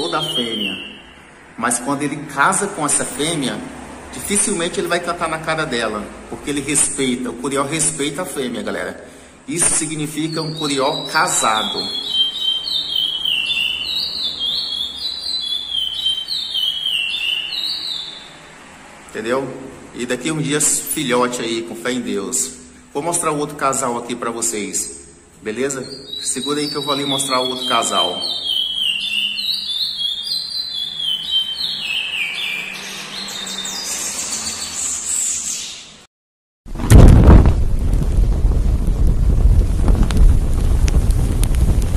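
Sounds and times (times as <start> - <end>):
bird singing whistled notes: 0.0 - 1.3, 10.2 - 18.4, 25.7 - 36.0.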